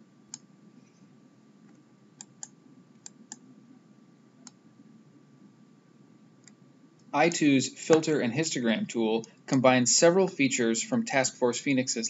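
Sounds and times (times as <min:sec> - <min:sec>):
low room hiss: 0:00.0 - 0:12.0
computer mouse clicks: 0:01.6 - 0:03.4, 0:06.4 - 0:08.0.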